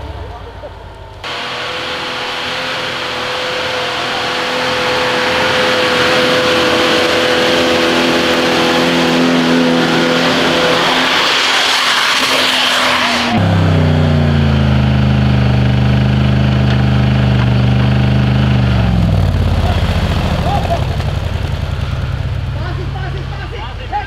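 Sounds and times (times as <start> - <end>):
engine running at high revs: 0.0 - 23.7
loud rushing noise: 1.2 - 15.1.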